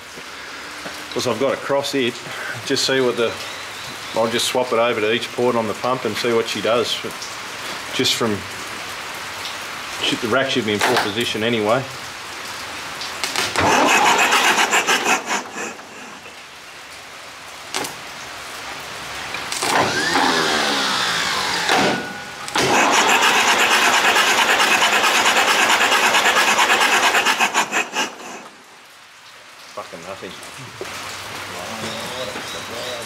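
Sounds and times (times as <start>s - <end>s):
starter motor cranking diesel engine: 13.5s - 16.4s, 19.6s - 28.5s.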